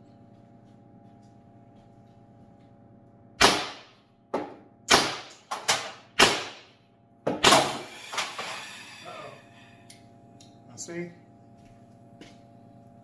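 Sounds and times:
paintball gun shots: 3.4s - 3.9s, 4.9s - 6.7s.

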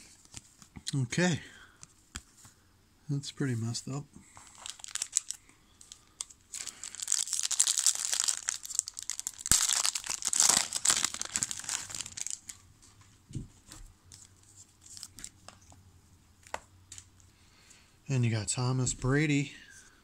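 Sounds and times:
foil wrapper crinkling and tearing: 4.3s - 12.6s.

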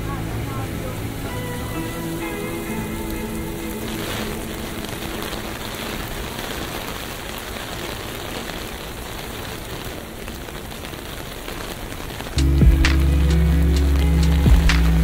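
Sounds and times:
steady rainfall: 0.0s - 15.0s.

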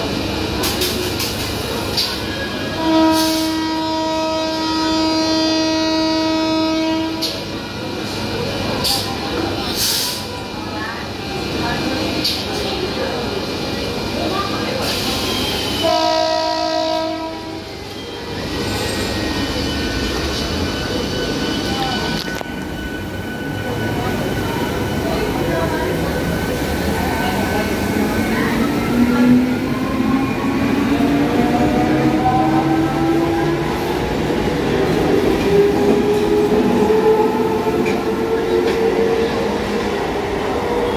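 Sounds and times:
train coaches rumbling by: 0.0s - 40.9s
train horn: 2.7s - 7.4s, 15.6s - 17.7s.

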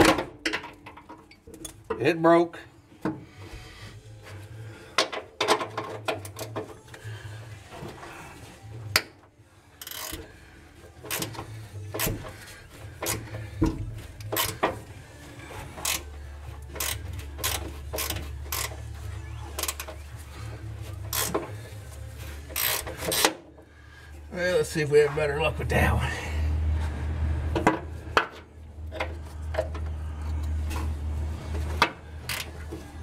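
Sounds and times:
ratchet clicking: 9.8s - 10.3s, 15.8s - 16.1s, 16.7s - 18.8s, 21.1s - 21.5s, 22.5s - 23.4s.

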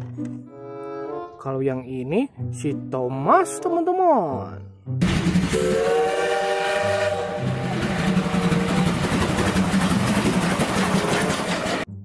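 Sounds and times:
steam locomotive running: 5.0s - 11.9s
steam whistle chord: 5.5s - 9.2s.

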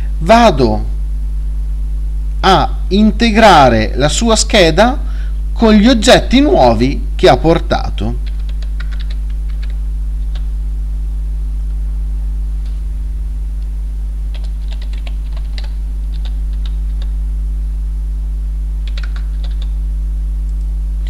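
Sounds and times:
low electrical hum: 0.0s - 21.0s
keyboard typing clicks: 8.2s - 10.5s, 18.8s - 19.7s.

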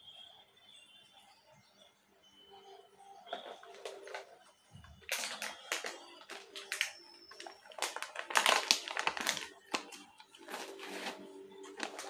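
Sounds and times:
plastic packet crinkling: 3.3s - 12.0s.

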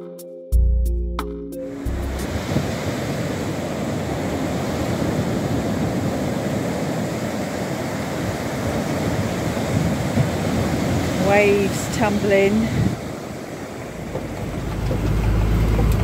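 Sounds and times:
waves breaking on beach: 1.7s - 16.0s
wind buffeting microphone: 1.8s - 16.0s.

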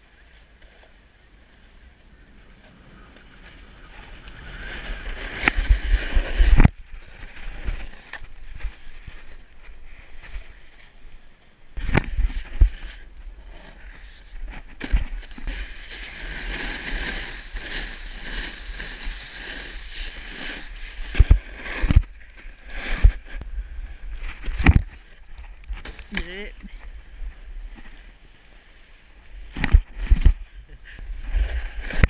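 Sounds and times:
snowboard scraping over snow: 0.2s - 11.1s, 11.8s - 25.2s, 25.8s - 32.0s
wind rumble on microphone: 1.2s - 9.5s.

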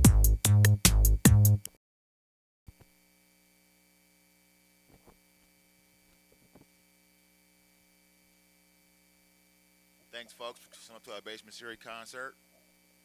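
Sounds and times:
faint electrical hum: 2.7s - 13.0s.

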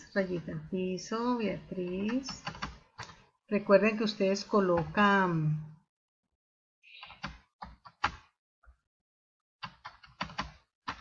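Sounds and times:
computer keyboard typing: 1.7s - 3.3s, 7.0s - 8.3s, 9.6s - 11.0s.

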